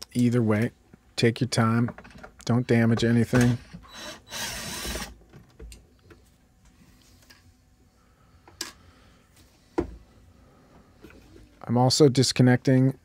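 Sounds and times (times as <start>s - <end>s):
cordless drill running: 3.8s - 5.2s.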